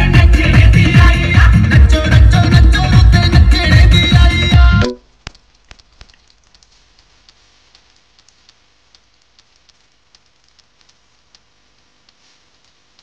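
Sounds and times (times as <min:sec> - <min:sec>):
low steady hiss: 0:00.3 - 0:13.0
faint small clicks: 0:05.2 - 0:13.0.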